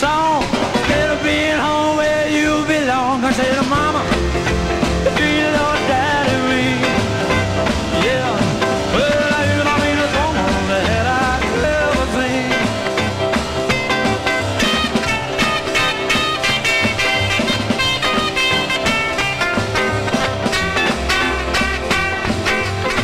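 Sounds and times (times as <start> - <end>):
person singing: 0.0 - 13.1
rock and roll music: 0.0 - 23.0.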